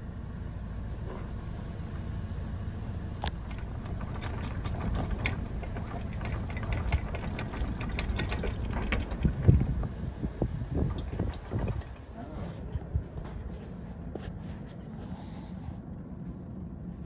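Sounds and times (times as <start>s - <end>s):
boat engine rumbling: 2.8s - 14.2s
chain clunk: 3.4s - 9.7s
anchor chain rattling: 3.4s - 9.9s, 10.8s - 12.2s.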